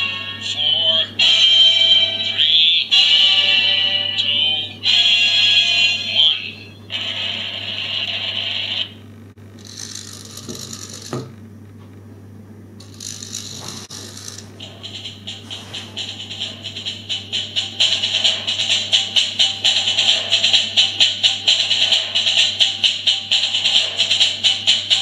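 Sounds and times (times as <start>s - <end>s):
music from small speaker: 0.0s - 7.0s, 13.0s - 25.0s
mechanism whirring: 4.8s - 25.0s
drum loop through speaker: 14.6s - 25.0s.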